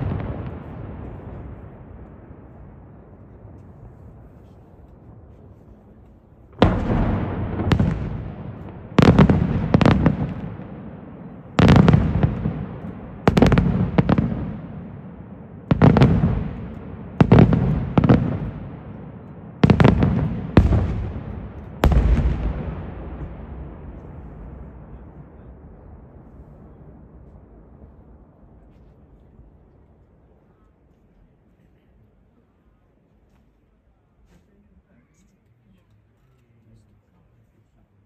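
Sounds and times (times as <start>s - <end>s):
firework bangs echoing: 0.0s - 5.4s, 6.4s - 28.6s.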